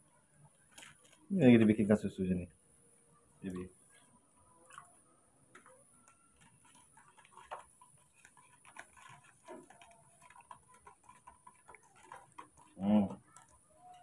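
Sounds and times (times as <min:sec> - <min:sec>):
metal spoon stirring in plastic cup: 0:04.6 - 0:14.0.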